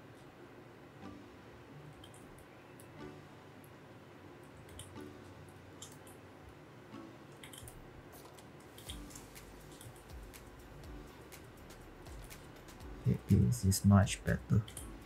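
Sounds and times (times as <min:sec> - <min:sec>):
mouse and keyboard clicks: 0:02.0 - 0:02.9, 0:05.8 - 0:06.2, 0:07.4 - 0:09.1.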